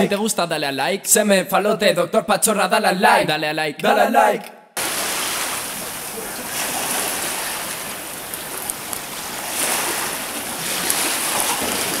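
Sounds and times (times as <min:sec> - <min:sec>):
legs splashing through water: 0:04.8 - 0:12.0
rushing water: 0:04.8 - 0:12.0.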